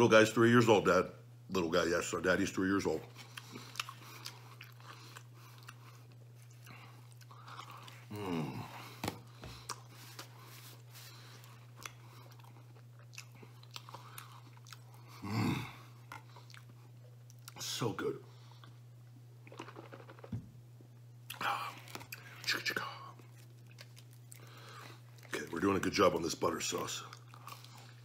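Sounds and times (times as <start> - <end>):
man chewing: 3.0 - 17.6, 19.4 - 20.3, 21.2 - 25.4, 27.1 - 28.0.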